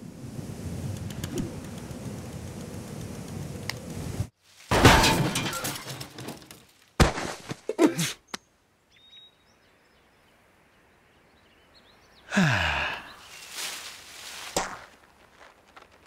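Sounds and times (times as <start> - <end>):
faint bird chirps: 8.2 - 13.8.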